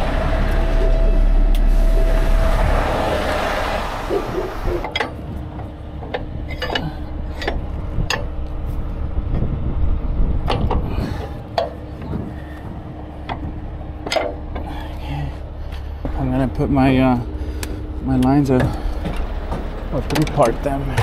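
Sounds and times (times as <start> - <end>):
diesel engine idling: 0.0 - 21.0
metallic knocks and clanks: 4.1 - 8.4, 10.4 - 15.0, 18.4 - 21.0.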